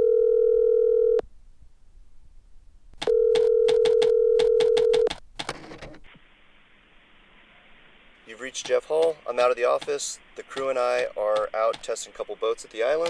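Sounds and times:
telephone dial tone: 0.0 - 1.2, 3.0 - 5.1
phone dialling clicks: 3.0 - 5.8.

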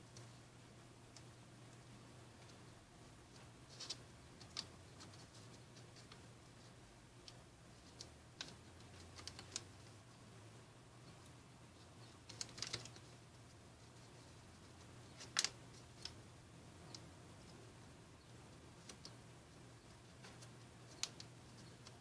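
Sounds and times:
low steady hum: 0.0 - 22.0
paper crinkling: 12.0 - 13.2, 13.8 - 16.2.

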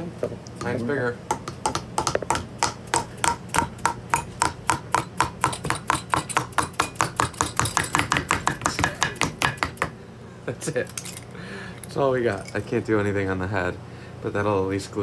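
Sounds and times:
mallets tapping on metal: 0.6 - 9.9.

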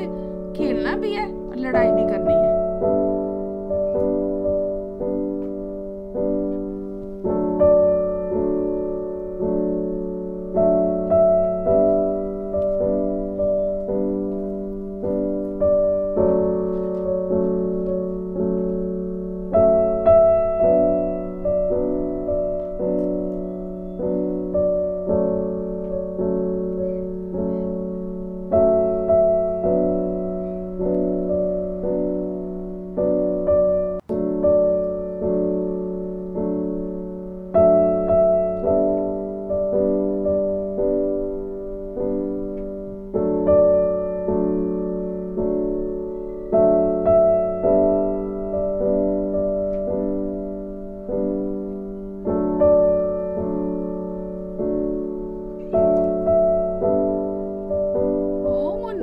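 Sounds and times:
gentle slow piano piece: 0.0 - 59.0.

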